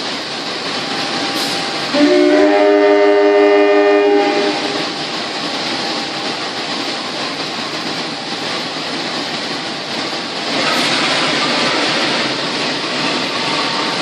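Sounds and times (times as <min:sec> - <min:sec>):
train running noise: 0:00.0 - 0:14.0
diesel locomotive horn: 0:01.9 - 0:04.9.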